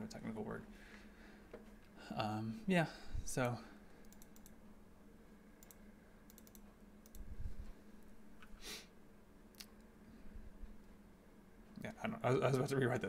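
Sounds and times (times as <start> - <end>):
mouse and keyboard clicks: 5.6 - 7.3
short breathy hiss: 8.5 - 9.0.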